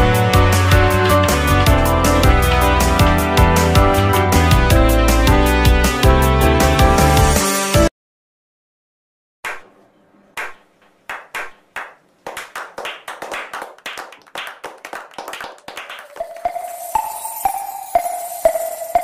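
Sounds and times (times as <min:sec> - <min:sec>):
music tone: 0:00.0 - 0:07.6, 0:15.6 - 0:19.0
slow hand claps: 0:09.4 - 0:09.7, 0:10.4 - 0:16.9.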